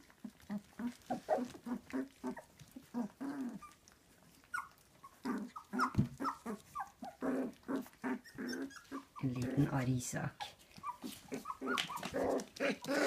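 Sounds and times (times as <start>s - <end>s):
puppies whimpering and yipping: 0.0s - 13.0s.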